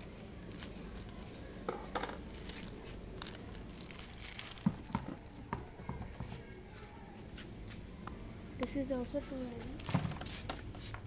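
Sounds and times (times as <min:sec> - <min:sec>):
plastic crinkling and tearing: 0:00.0 - 0:01.4, 0:02.2 - 0:04.9.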